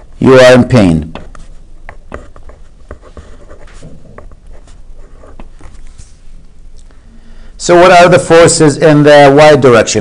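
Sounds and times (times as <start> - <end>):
marker scratching on paper: 1.2 - 6.1.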